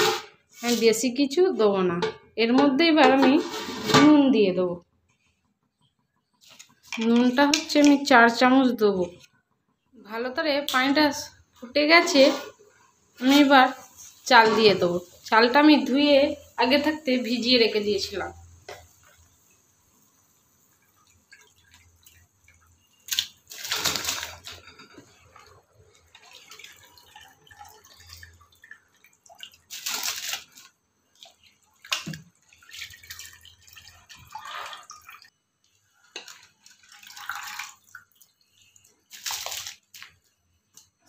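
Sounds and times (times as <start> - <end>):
rice splashing into water: 39.0 - 40.1.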